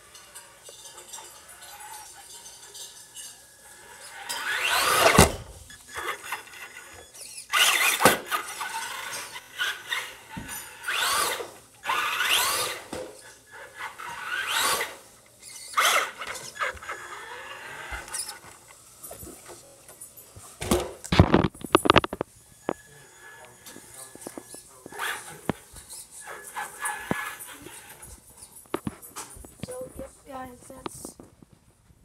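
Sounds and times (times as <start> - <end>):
rc truck motor whining: 3.1 - 19.2.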